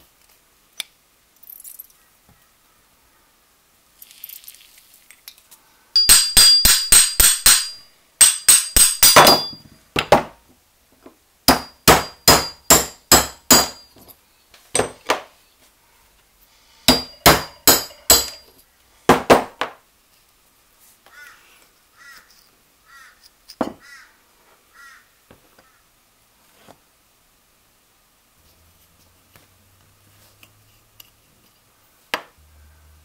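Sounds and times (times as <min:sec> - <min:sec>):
hammer tapping steel shaft: 0:06.0 - 0:09.6, 0:11.5 - 0:13.9, 0:16.9 - 0:18.5.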